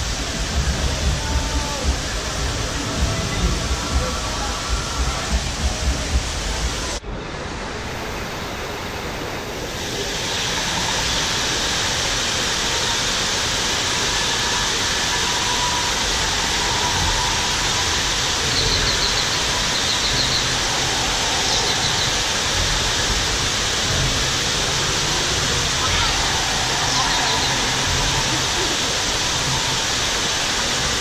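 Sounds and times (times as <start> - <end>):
steady rushing noise: 0.0 - 31.0
faint high chirps: 15.2 - 22.6.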